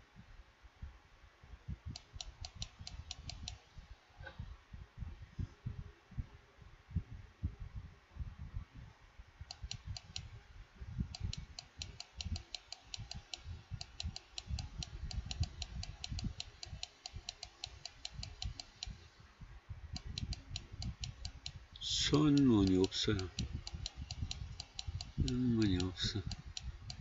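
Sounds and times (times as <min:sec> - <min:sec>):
rapid keyboard clicks: 0:11.2 - 0:18.9, 0:20.0 - 0:27.0.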